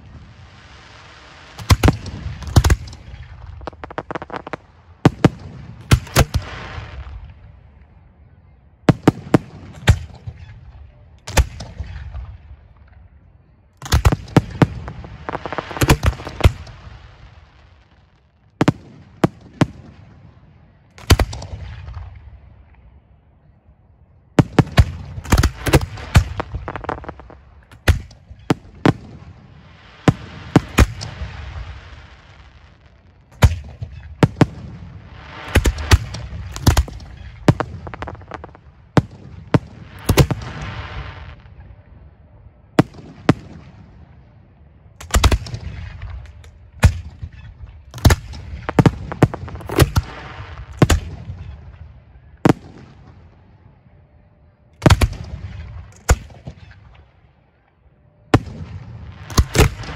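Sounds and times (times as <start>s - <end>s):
fireworks crackling hiss: 0.0s - 7.3s, 13.9s - 18.4s, 24.6s - 33.4s, 34.2s - 41.6s, 48.0s - 51.6s
fireworks sharp bangs: 0.0s - 7.9s, 8.9s - 12.8s, 13.8s - 22.8s, 24.4s - 41.8s, 45.0s - 53.4s, 54.8s - 57.0s, 58.3s - 59.9s.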